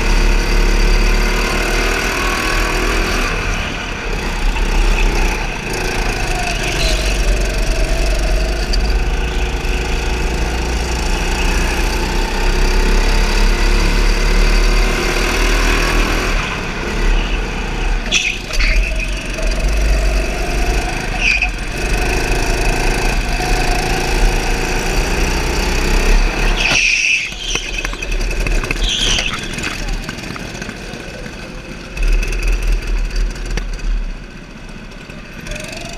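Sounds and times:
go-kart motor running: 0:00.0 - 0:35.9
short high squeals: 0:18.0 - 0:19.5, 0:21.1 - 0:21.6, 0:26.4 - 0:30.0.

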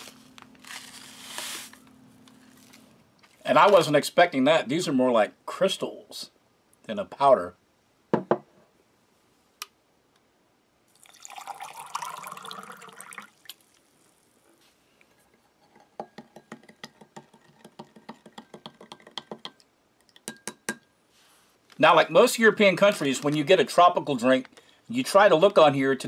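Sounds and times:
water pouring into a glass: 0:10.9 - 0:14.2
spoon tapping glass: 0:15.6 - 0:20.9.

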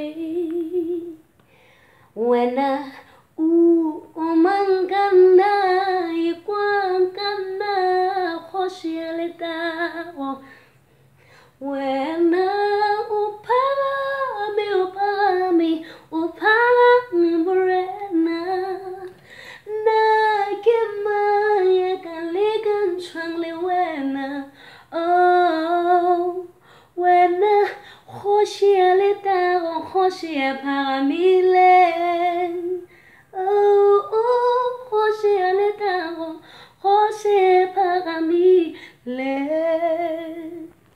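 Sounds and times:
woman singing unaccompanied: 0:00.0 - 0:01.3, 0:02.2 - 0:10.6, 0:11.5 - 0:40.8
singer breathing: 0:01.4 - 0:02.2, 0:19.2 - 0:19.7.

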